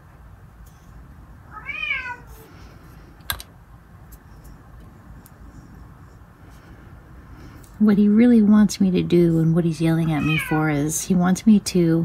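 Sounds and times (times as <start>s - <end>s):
cat meowing: 1.5s - 2.5s, 10.0s - 10.9s.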